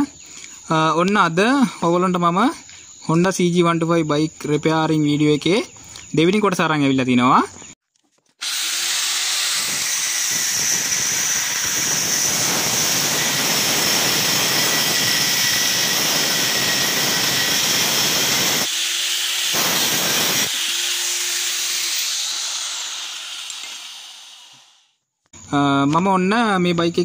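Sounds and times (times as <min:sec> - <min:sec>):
angle grinder cutting metal: 0:08.4 - 0:24.9.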